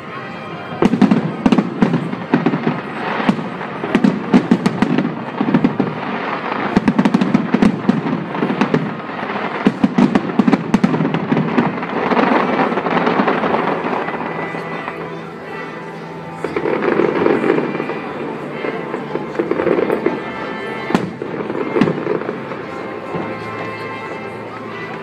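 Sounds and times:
continuous crackling of fireworks: 0.0s - 25.0s.

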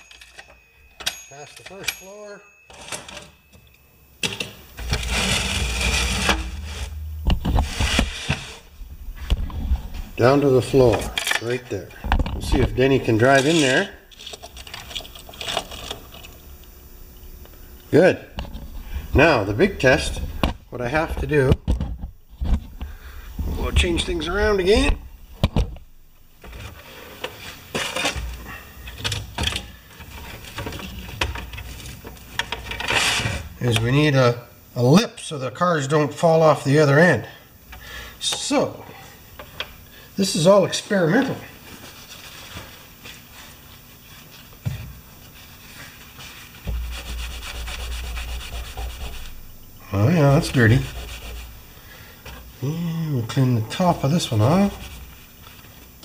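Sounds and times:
toy elevator rattling whir: 4.8s - 6.9s.

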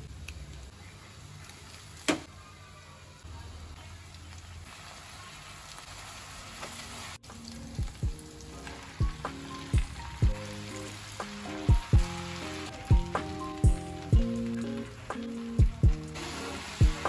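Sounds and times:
vegetables sizzling in a frying pan: 0.0s - 17.0s
soft music with thumping beat: 7.2s - 17.0s.

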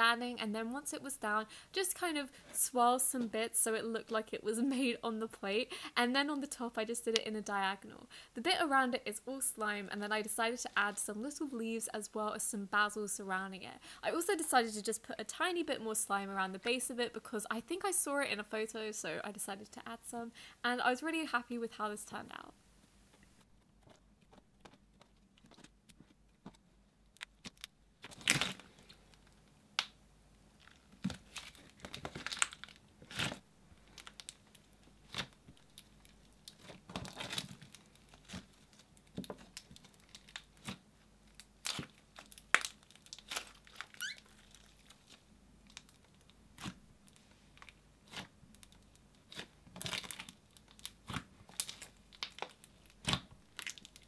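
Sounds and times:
sticky slime pops and crackles: 41.4s - 43.9s, 48.0s - 54.0s.

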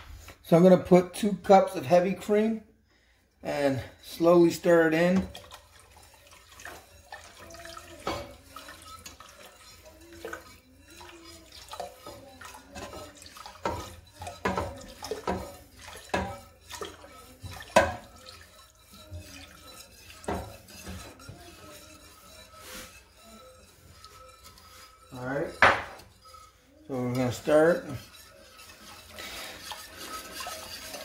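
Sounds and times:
whisk clinking against metal pot: 3.6s - 31.0s
cream pouring into pot: 4.0s - 31.0s.

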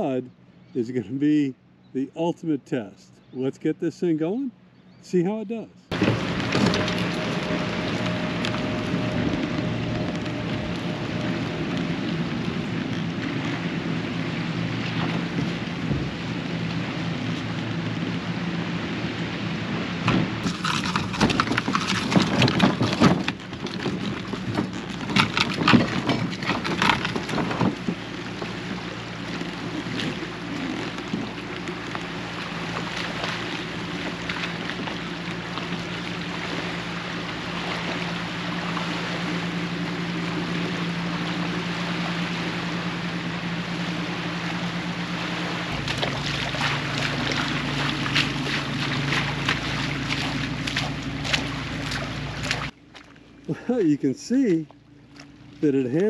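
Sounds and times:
low steady hum: 0.0s - 56.0s
wind on microphone: 5.9s - 35.2s
cart crunching through mud and water: 5.9s - 56.0s.

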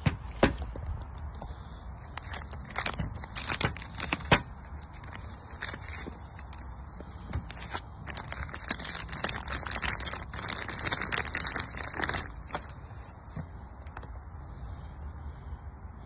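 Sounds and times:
plastic bag crinkling and rustling: 2.1s - 14.1s.

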